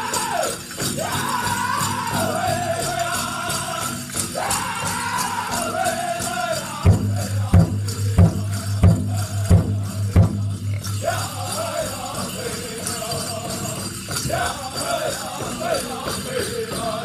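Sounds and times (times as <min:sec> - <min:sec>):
drum group singing high-pitched: 0:00.0 - 0:17.0
jingling bells: 0:00.0 - 0:17.0
big drum beating: 0:06.8 - 0:12.4.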